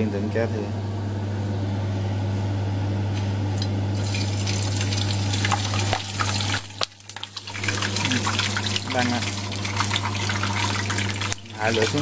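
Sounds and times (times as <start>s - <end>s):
oil sizzling in a frying pan: 3.9s - 12.0s.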